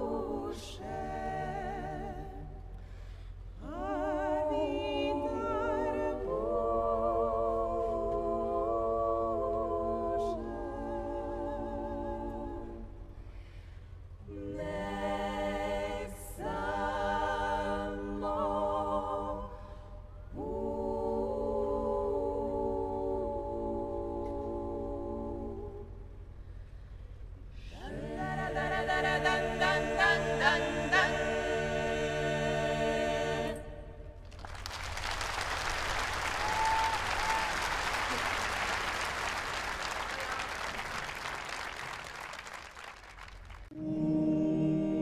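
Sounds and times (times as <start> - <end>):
vocal group singing held chords: 0.0 - 13.4, 14.2 - 26.2, 27.5 - 34.2, 43.7 - 45.0.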